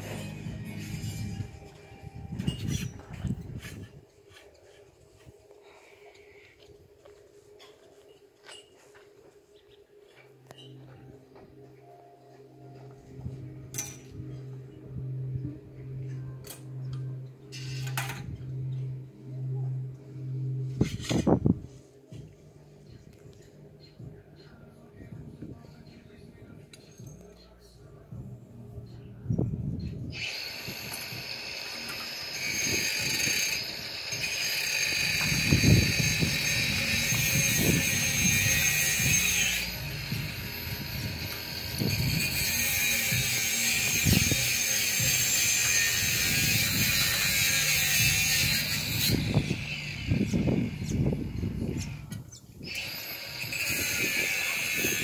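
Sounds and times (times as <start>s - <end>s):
metal poles clinking and scraping: 0.0s - 5.4s, 7.6s - 9.1s, 13.7s - 14.8s, 16.0s - 18.8s, 20.7s - 21.5s
pulsing low hum: 27.6s - 30.1s, 35.5s - 42.2s
small electric motor whining: 30.1s - 55.0s.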